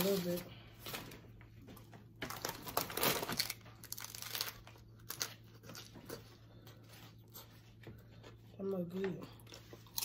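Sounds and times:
chip bag crinkling: 2.2 - 5.9.

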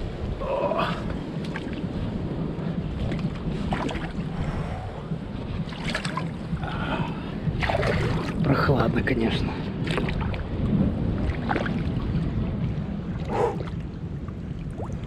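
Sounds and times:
wind buffeting microphone: 0.0 - 15.0
water sloshing in rock pool: 3.0 - 4.5, 5.6 - 6.5, 7.6 - 8.8, 9.8 - 10.6, 11.2 - 15.0.

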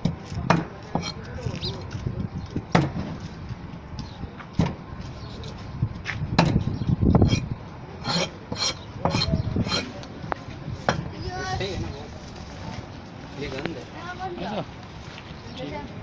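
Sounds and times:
knife chopping on wooden block: 0.1 - 1.2, 8.0 - 9.9.

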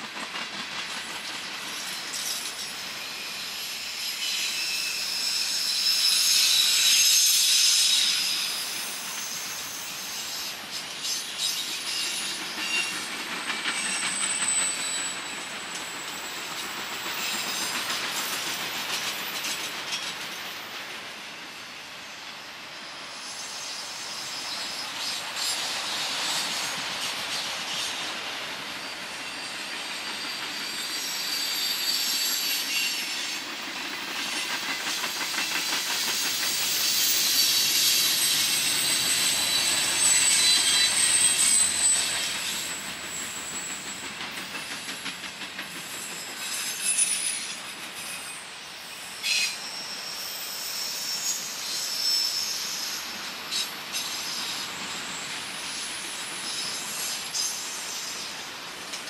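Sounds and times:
clacks over rail joints: 0.0 - 2.6, 40.4 - 47.9
train wheels squealing on rails: 0.0 - 59.0.

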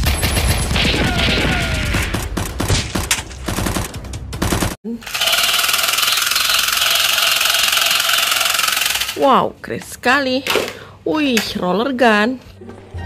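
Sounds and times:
rapid machine-gun fire: 0.0 - 9.2
toy gun buzzing rattle: 5.0 - 9.2.

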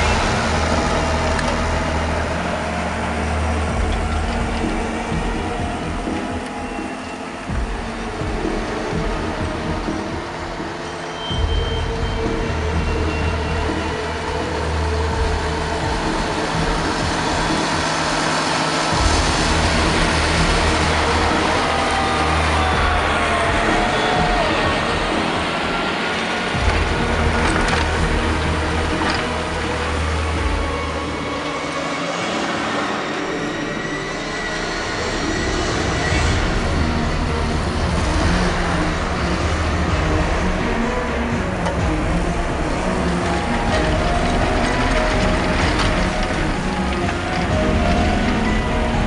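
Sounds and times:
tractor diesel engine: 0.0 - 49.0.

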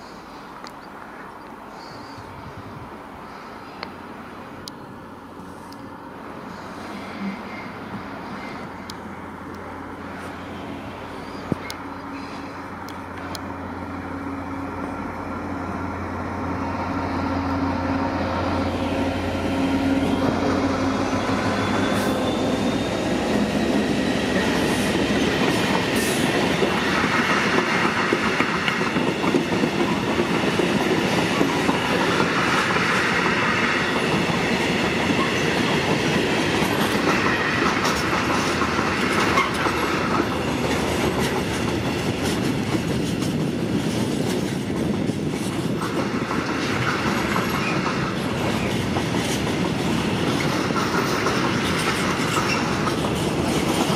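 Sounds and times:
diesel locomotive engine drone: 0.0 - 53.9
freight wagons rumbling on rails: 5.0 - 53.9
high wheel squeal: 6.5 - 8.9, 11.0 - 12.7, 19.6 - 24.8.

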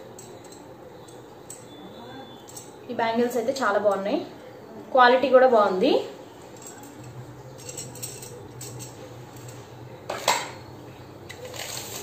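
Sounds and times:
metal bangles clinking: 0.0 - 2.9, 6.4 - 10.4.

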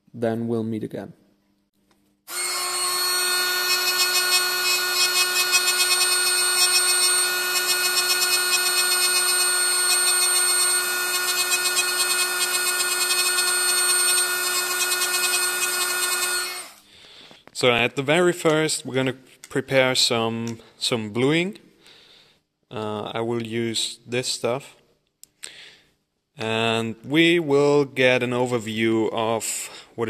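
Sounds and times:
pencil grinder grinding metal: 2.3 - 16.8.

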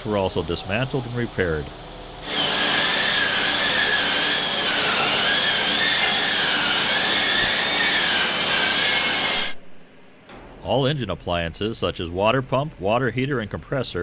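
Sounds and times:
angle grinder whining on steel: 2.1 - 9.6.

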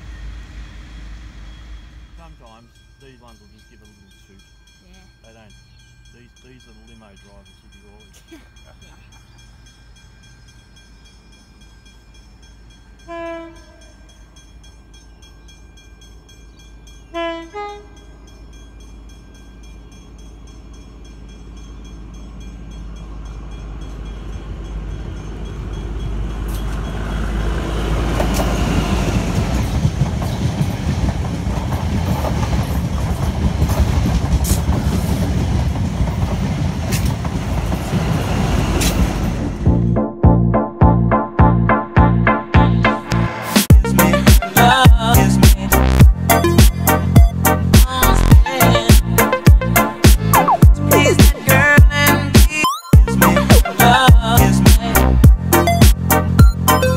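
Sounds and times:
train passing by: 0.0 - 40.7, 42.7 - 52.4, 53.0 - 56.9
train horn blasts: 13.0 - 14.0, 17.1 - 18.1
wheels clicking over rail joints: 21.2 - 39.5.

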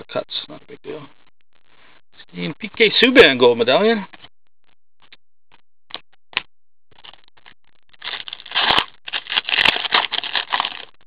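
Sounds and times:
wrapper tearing and crinkling: 7.0 - 11.0.

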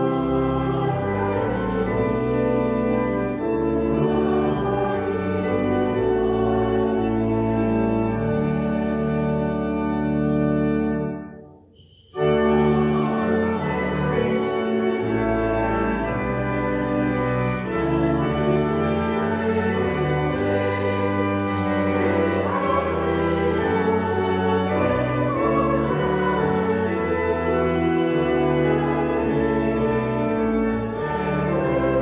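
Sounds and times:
pipe organ: 0.0 - 32.0
choir and congregation singing hymn: 3.9 - 8.5, 12.0 - 30.2.

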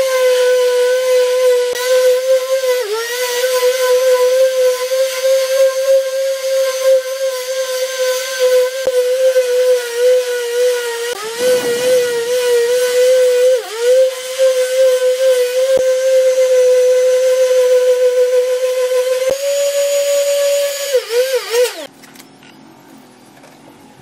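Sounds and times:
orbital sander motor whine: 0.0 - 21.9.

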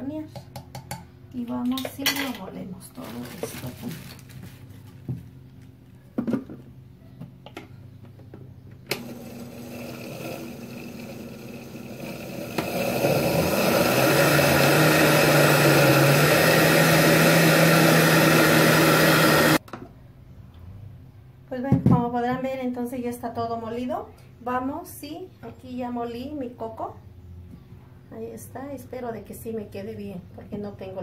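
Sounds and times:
electric blender running: 8.9 - 19.6.

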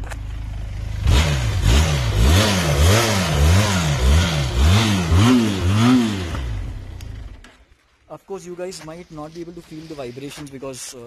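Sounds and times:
motorcycle engine revving: 0.0 - 7.6.

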